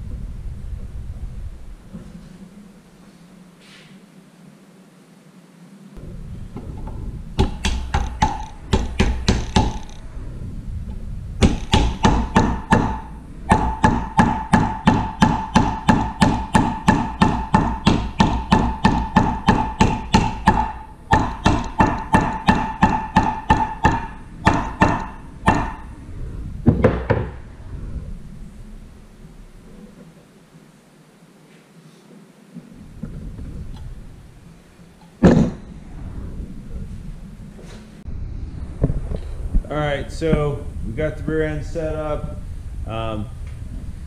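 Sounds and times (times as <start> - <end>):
hammer striking metal: 7.4 - 10.0, 11.4 - 25.9.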